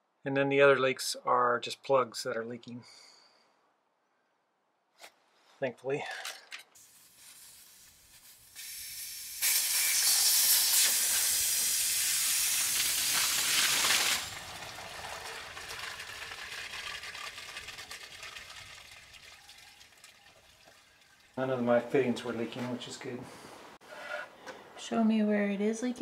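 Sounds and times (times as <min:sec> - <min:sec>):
water gushing from pipe: 0:08.6 - 0:21.4.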